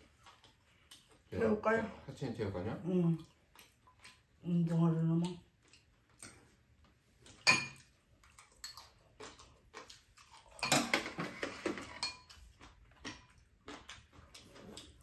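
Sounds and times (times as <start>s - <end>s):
utensils clinking against bowls: 10.6s - 12.4s.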